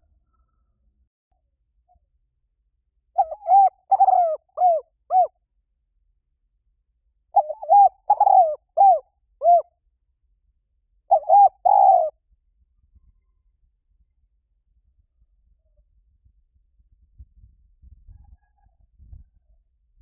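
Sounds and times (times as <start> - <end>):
dove cooing: 3.2 - 5.3, 7.4 - 9.7, 11.1 - 12.2.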